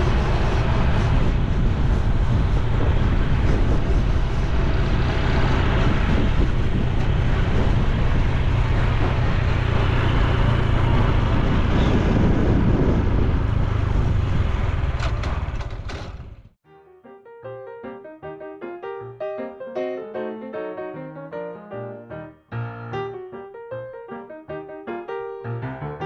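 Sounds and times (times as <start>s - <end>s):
wind and road noise: 0.0s - 16.6s
soft piano music: 16.6s - 26.0s.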